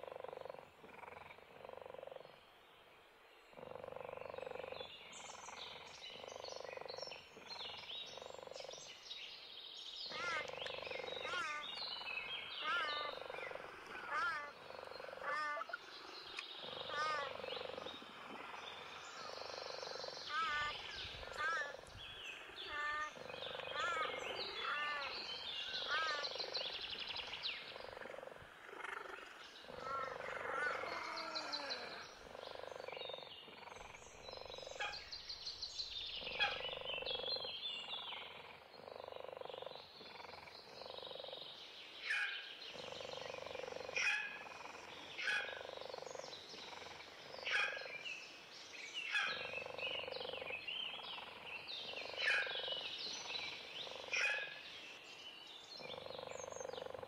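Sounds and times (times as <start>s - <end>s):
low croaking call: 0.0s - 2.3s, 10.1s - 35.2s, 35.9s - 48.0s, 49.0s - 55.0s, 55.7s - 57.0s
birds chirping and trilling: 3.4s - 57.0s.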